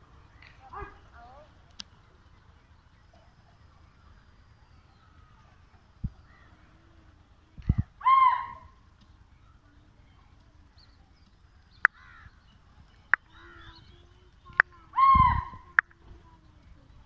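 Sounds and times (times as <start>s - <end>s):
harsh animal calls: 14.6s - 15.9s.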